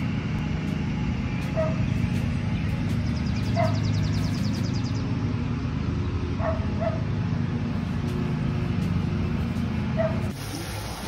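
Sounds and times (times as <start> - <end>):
steady low hum: 0.0 - 11.0
dog barking: 1.6 - 1.8, 3.6 - 3.9, 6.4 - 7.1, 10.0 - 10.3.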